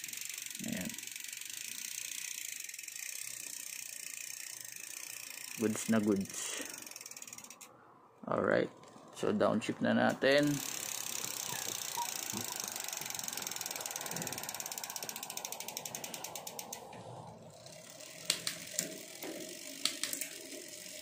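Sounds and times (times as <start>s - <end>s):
bicycle freewheel ticking: 0.0s - 7.8s, 10.2s - 21.0s
sharp clicks: 18.2s - 20.4s.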